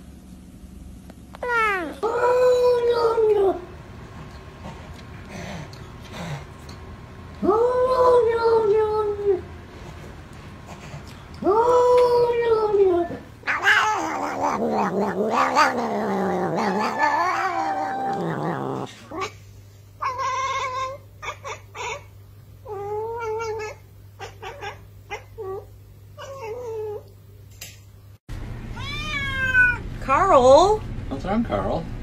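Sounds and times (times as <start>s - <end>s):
cat yowling: 1.4s - 3.6s, 11.4s - 19.3s, 20.0s - 27.0s, 28.8s - 29.8s
cat chirping: 28.8s - 29.8s.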